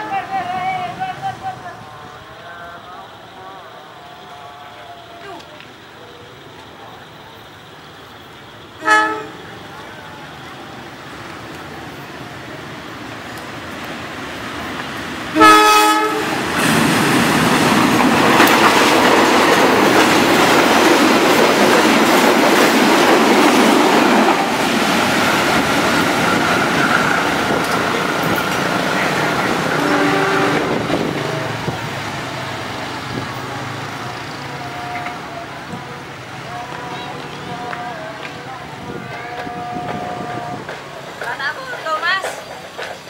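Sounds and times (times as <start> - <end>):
faint train hoot: 8.7 - 10.9, 15.4 - 16.4, 29.0 - 31.5, 34.0 - 42.4
locomotive horn blast: 8.8 - 9.7, 15.3 - 16.8, 28.9 - 31.6, 34.0 - 40.8
train wheels clattering on rails: 16.3 - 34.2, 36.6 - 43.0.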